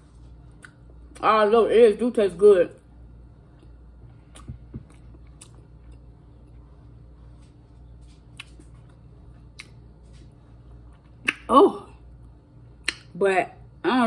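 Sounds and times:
low steady hum: 0.0 - 14.0
chewing food: 3.5 - 11.4.

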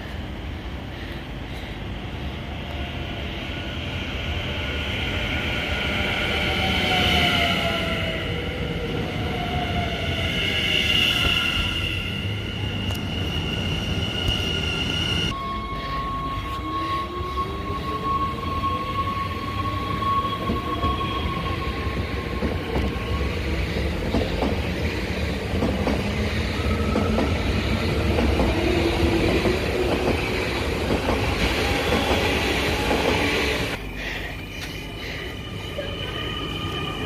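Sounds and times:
train wheels clattering on rails: 22.2 - 33.8.

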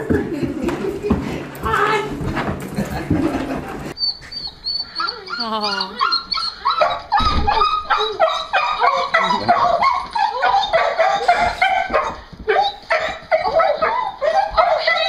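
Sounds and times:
dog whining and yelping: 4.0 - 15.0.

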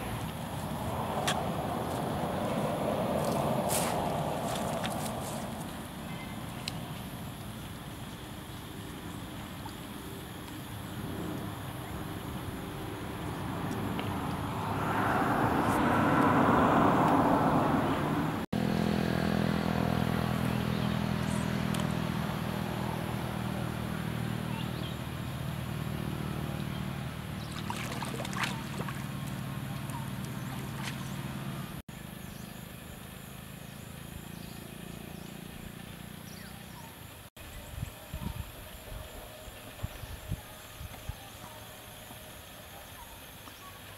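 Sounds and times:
low motor hum: 0.0 - 36.9
outdoor background noise: 0.0 - 43.9.

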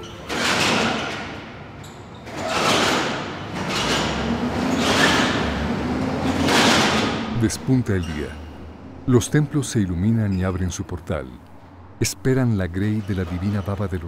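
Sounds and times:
wooden doors scraping: 0.0 - 9.1, 12.8 - 14.0.

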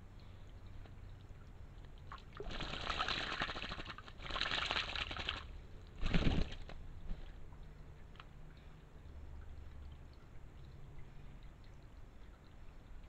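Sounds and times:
stream trickling: 0.0 - 13.0
bird splashing in water: 2.0 - 7.4.

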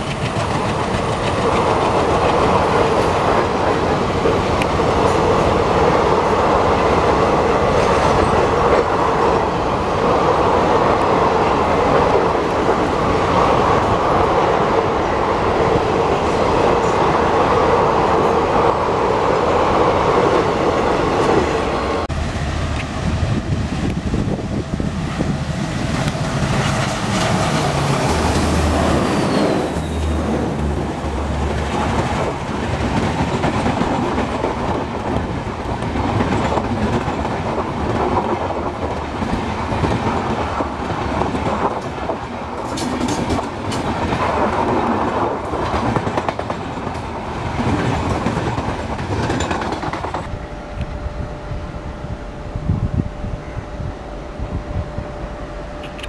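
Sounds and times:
train wheels clattering over rail joints: 0.0 - 6.3, 31.3 - 50.3
rush of passing train: 0.0 - 56.0.

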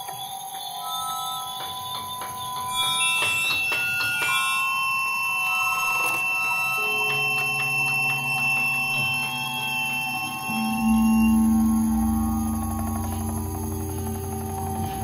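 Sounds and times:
bell-like electronic tones: 0.8 - 15.0
low hum: 8.8 - 15.0.

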